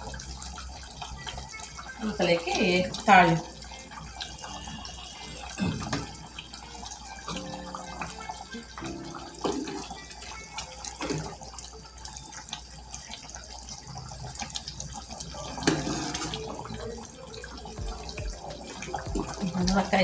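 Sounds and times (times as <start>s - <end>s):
curry bubbling in a pan: 0.0s - 20.0s.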